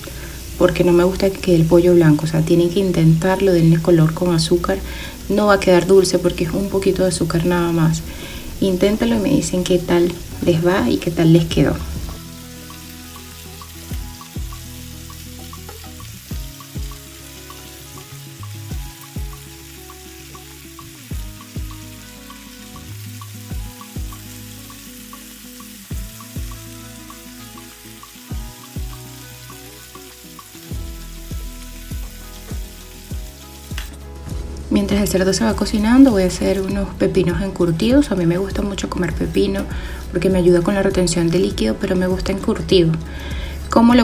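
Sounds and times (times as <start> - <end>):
pork sizzling in a frying pan: 0.0 - 44.0
background music with a beat: 11.8 - 36.3, 37.9 - 44.0.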